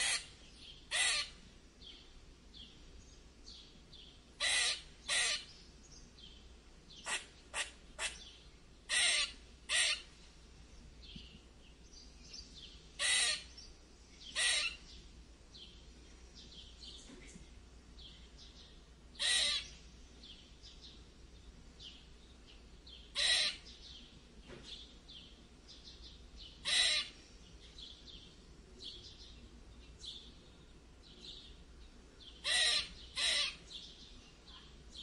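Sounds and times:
squirrel angry squeaks: 0.0s - 0.3s, 0.9s - 1.4s, 4.4s - 5.5s, 8.9s - 10.1s, 13.0s - 13.5s, 14.4s - 14.8s, 19.2s - 19.7s, 23.2s - 23.6s, 26.6s - 27.1s, 32.4s - 33.6s.

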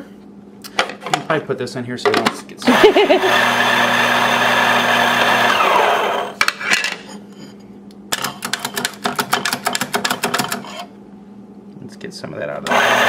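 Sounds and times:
coffee grinder motor whirring: 2.7s - 6.4s, 12.7s - 13.0s.

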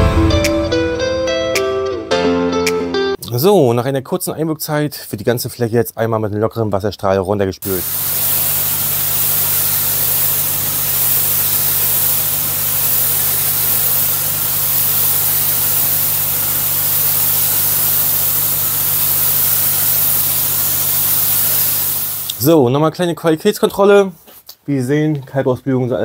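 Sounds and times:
water jet spraying on stone: 7.6s - 22.4s.

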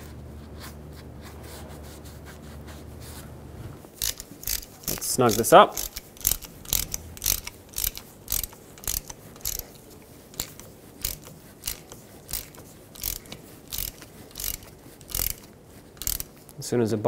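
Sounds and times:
ratchet clicking: 4.0s - 16.5s.

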